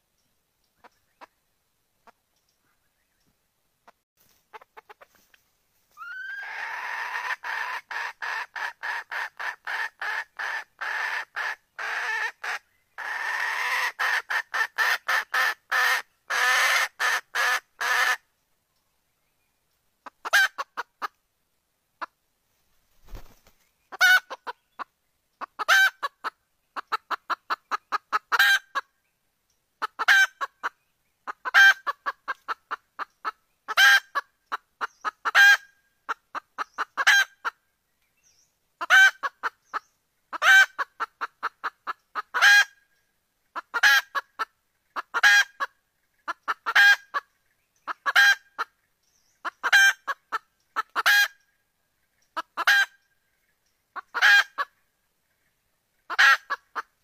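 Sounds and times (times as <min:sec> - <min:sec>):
hen clucking: 0:03.8 - 0:05.4, 0:06.0 - 0:18.2, 0:20.0 - 0:21.2, 0:23.1 - 0:28.9, 0:29.8 - 0:37.6, 0:38.8 - 0:42.8, 0:43.5 - 0:48.8, 0:49.4 - 0:51.5, 0:52.1 - 0:53.0, 0:54.0 - 0:54.8, 0:56.0 - 0:57.0
junglefowl hen calling: 0:03.8 - 0:18.3, 0:20.0 - 0:21.2, 0:23.1 - 0:28.9, 0:29.8 - 0:37.6, 0:38.8 - 0:42.9, 0:43.5 - 0:51.5, 0:52.1 - 0:53.1, 0:53.9 - 0:54.8, 0:56.0 - 0:57.0.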